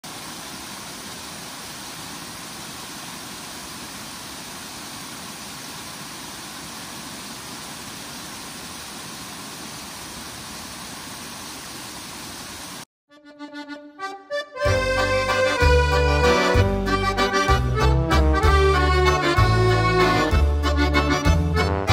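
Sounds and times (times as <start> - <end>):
water rushing over rocks: 0.0 - 12.8.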